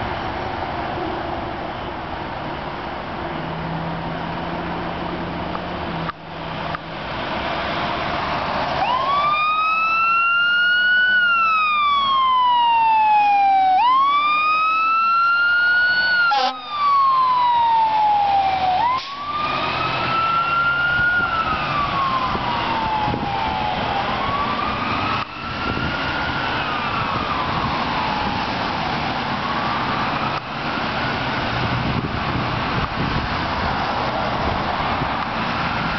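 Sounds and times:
traffic noise: 0.0s - 35.9s
emergency siren wailing: 7.3s - 35.9s.

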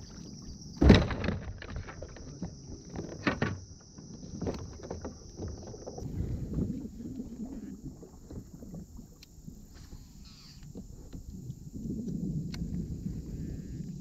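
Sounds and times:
water splashing: 4.4s - 13.7s.

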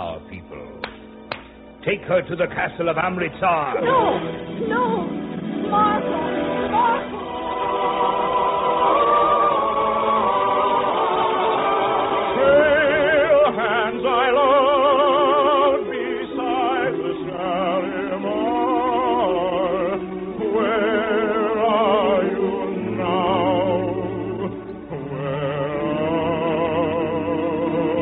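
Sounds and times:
muffled operatic music with singing: 0.0s - 28.0s.

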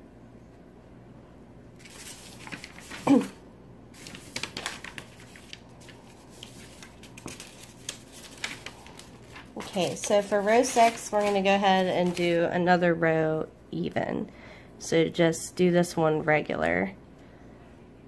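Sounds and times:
yarn rustling: 1.8s - 12.6s.

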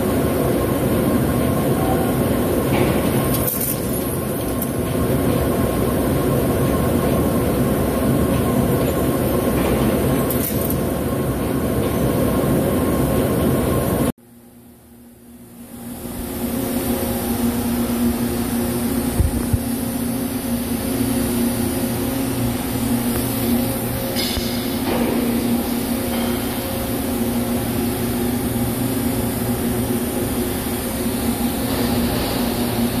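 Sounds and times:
machinery humming: 0.0s - 14.1s, 14.8s - 33.0s.

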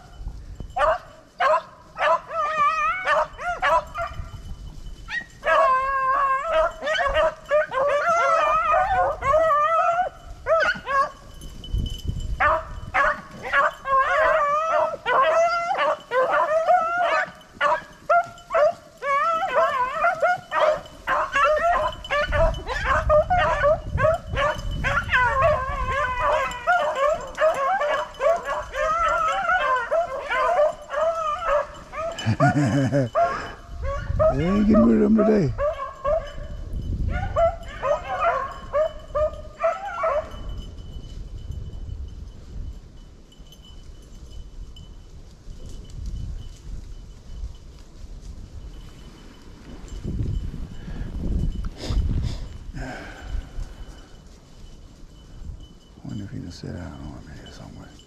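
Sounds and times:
beagles baying: 0.8s - 4.5s, 5.1s - 11.3s, 12.4s - 36.5s, 37.1s - 40.6s.

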